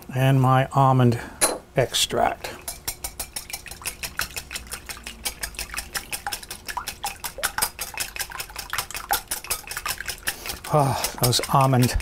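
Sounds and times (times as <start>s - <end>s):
whisk clicking against glass bowl: 2.6s - 12.0s.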